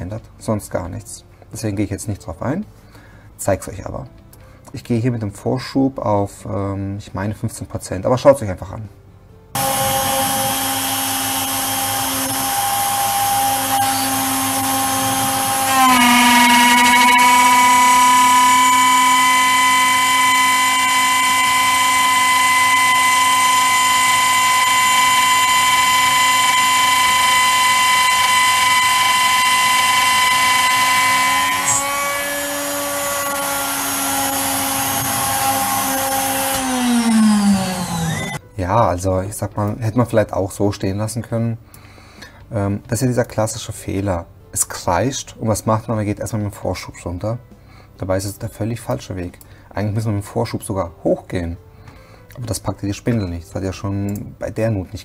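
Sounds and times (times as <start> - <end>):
high-pitched cutter screech: 9.6 - 38.4
milling spindle cutting aluminium: 9.6 - 38.4.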